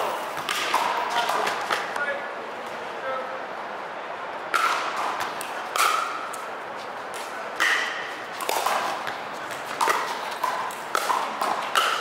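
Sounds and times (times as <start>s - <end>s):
paddle striking plastic ball: 9.8s - 12.0s.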